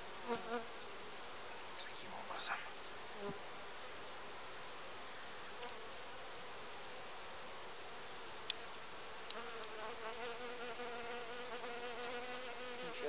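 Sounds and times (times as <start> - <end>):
single bee buzzing close by: 0.2 - 0.7, 9.4 - 13.0
honeybees buzzing: 9.3 - 13.0.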